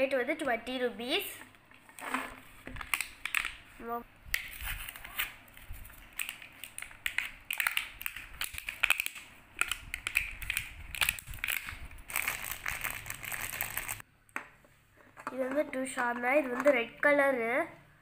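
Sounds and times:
plastic blister pack crackling: 0:06.0 - 0:14.0.

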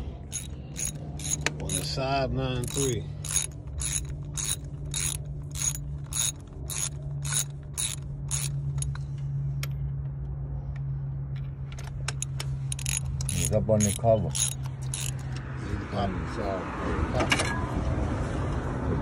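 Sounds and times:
steady low hum: 0:00.0 - 0:16.3
ratchet wrench clicking: 0:00.2 - 0:02.0, 0:02.6 - 0:09.0, 0:12.0 - 0:15.5.

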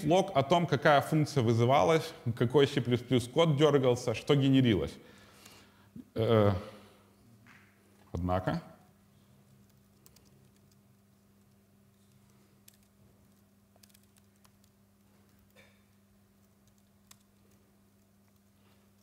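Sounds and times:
steady low hum: 0:00.0 - 0:19.0
keyboard typing clicks: 0:09.6 - 0:10.8, 0:12.1 - 0:19.0.

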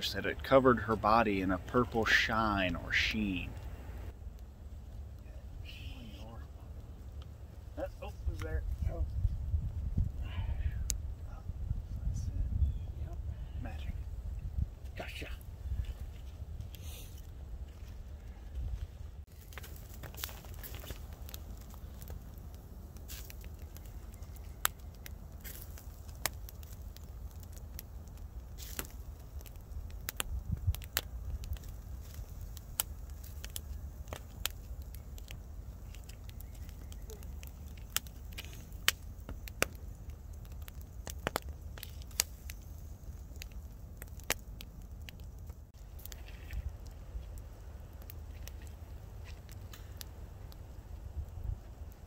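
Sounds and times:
wood fire crackling and popping: 0:00.0 - 0:52.0
wind rumble on microphone: 0:08.1 - 0:19.2, 0:29.2 - 0:38.5, 0:45.0 - 0:52.0.

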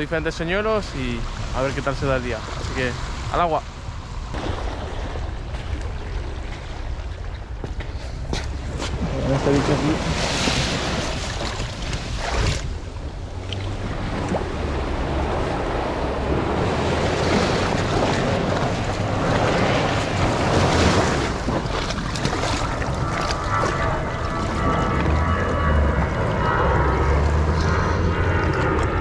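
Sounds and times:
wind rumbling on microphone: 0:00.0 - 0:29.0
waves washing over pebbles: 0:08.7 - 0:25.3.

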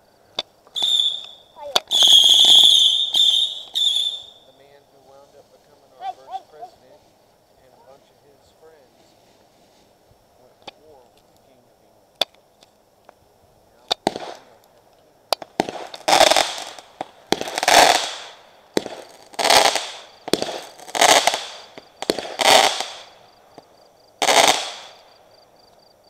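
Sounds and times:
firework launch pops: 0:00.4 - 0:04.2, 0:13.9 - 0:25.0
loud firework bangs: 0:00.8 - 0:04.4, 0:13.9 - 0:14.6, 0:15.3 - 0:25.1.

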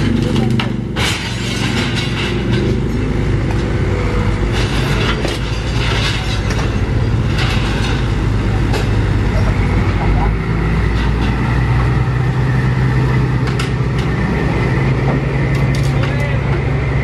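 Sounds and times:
debris knocking and clattering: 0:00.0 - 0:03.0, 0:04.5 - 0:09.1
heavy diesel engines running: 0:00.0 - 0:17.0.

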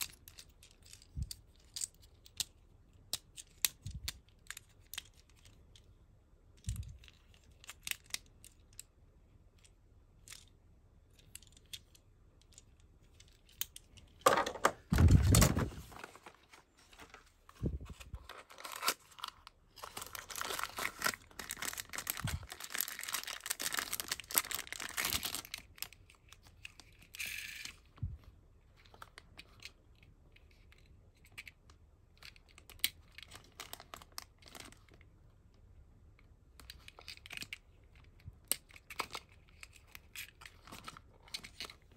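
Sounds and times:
light clicks of toy handled: 0:00.0 - 0:06.0, 0:06.6 - 0:14.6, 0:36.1 - 0:41.9
plastic bag crinkling: 0:14.3 - 0:25.8
cardboard box opened: 0:14.7 - 0:22.0.

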